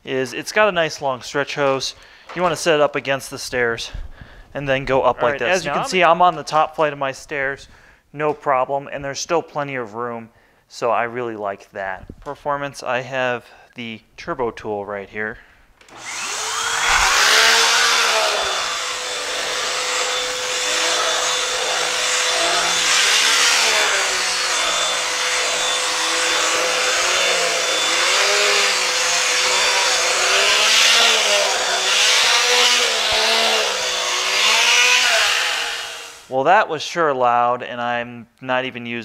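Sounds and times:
vacuum cleaner running: 5.3s - 5.9s, 15.8s - 36.3s
turbo brush hum on carpet: 15.9s - 36.3s.

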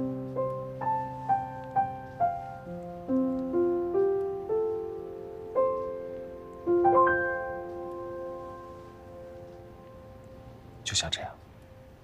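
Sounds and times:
slow soft piano melody: 0.0s - 12.0s.

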